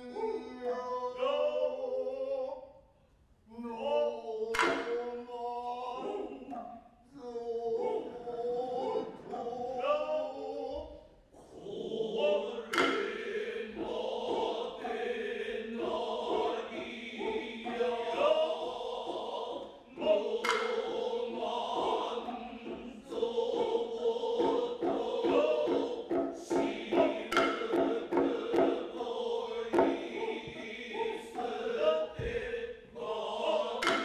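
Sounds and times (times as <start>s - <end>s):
chorus chanting in held tones: 0.0s - 34.0s
hand drum strokes: 12.7s - 13.2s, 20.4s - 21.1s, 24.4s - 29.0s, 33.8s - 34.0s.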